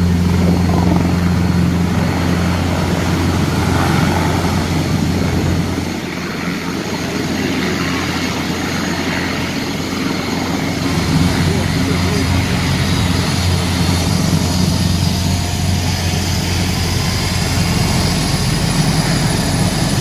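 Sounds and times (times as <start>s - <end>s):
helicopter rotor thrum: 0.0s - 20.0s
turbine hiss: 9.4s - 20.0s.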